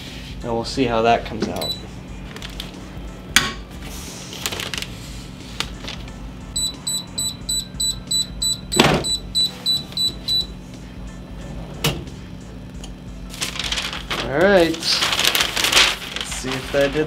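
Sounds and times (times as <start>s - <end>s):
heat press timer beeping: 6.6s - 10.6s.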